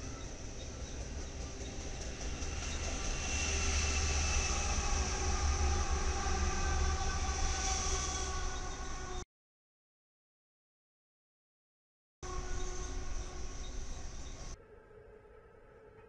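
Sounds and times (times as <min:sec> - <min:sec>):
diesel locomotive engine drone: 0:00.0 - 0:09.2, 0:12.2 - 0:16.0
train wheels rolling on rails: 0:00.0 - 0:09.2.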